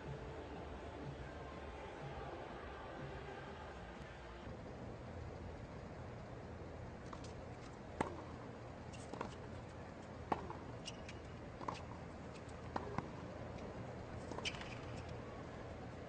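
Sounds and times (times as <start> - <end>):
low background hum: 0.0 - 16.0
tennis ball bouncing: 8.0 - 8.4, 9.0 - 9.5, 10.2 - 13.2, 14.2 - 15.2
shoe squeaks: 10.8 - 11.3, 14.2 - 15.1.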